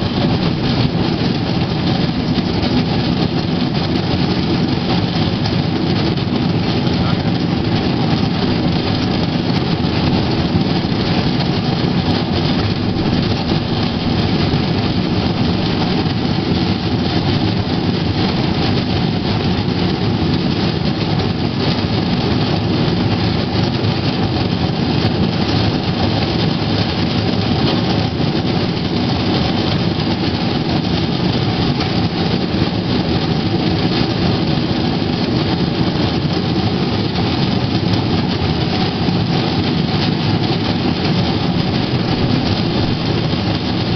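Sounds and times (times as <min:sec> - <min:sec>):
steel wheels rumbling on rails: 0:00.0 - 0:43.9.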